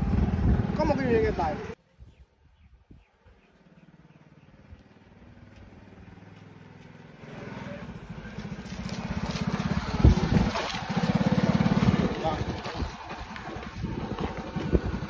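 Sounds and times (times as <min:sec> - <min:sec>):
small motorcycle engine running: 0:03.6 - 0:15.0.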